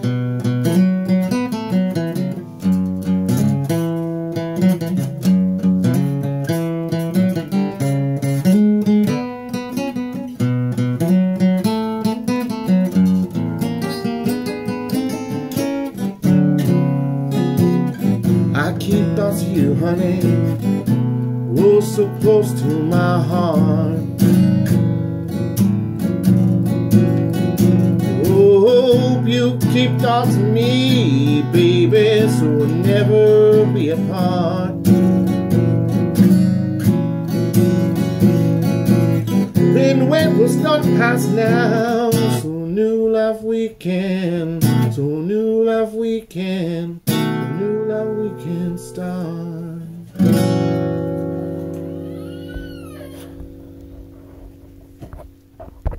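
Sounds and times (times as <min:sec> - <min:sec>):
acoustic blues guitar: 0:00.0 - 0:55.9
wordless singing: 0:18.5 - 0:20.8, 0:21.5 - 0:24.1, 0:28.2 - 0:34.9, 0:39.6 - 0:50.2.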